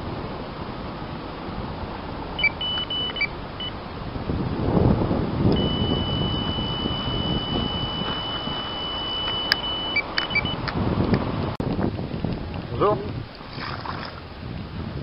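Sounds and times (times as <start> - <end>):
wind rumbling on microphone: 0.0 - 15.0
bite alarm beeps: 2.4 - 3.8, 5.6 - 10.6
continuous high alarm tone: 2.4 - 3.8, 5.6 - 10.6.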